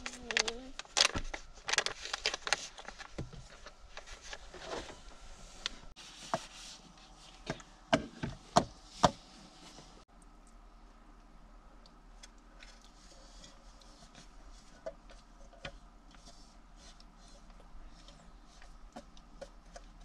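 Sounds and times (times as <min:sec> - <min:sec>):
food packet crinkling: 0:00.0 - 0:04.4.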